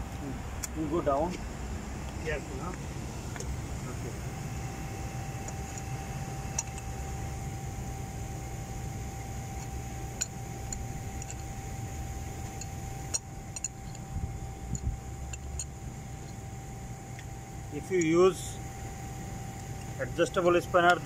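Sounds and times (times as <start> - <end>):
machine hum with thin whine: 0.0 - 21.0
metal spanner clicking on pipe: 6.5 - 6.9, 9.5 - 11.6, 12.4 - 14.1, 14.7 - 16.4, 19.6 - 21.0.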